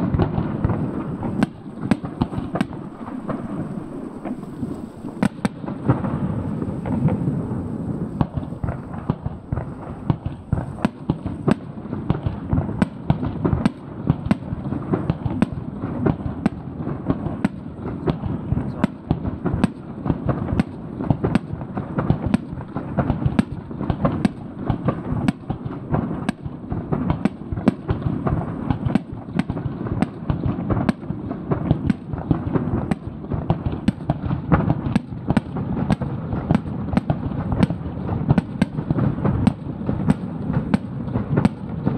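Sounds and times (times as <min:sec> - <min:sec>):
firework shells bursting: 0:00.0 - 0:16.6.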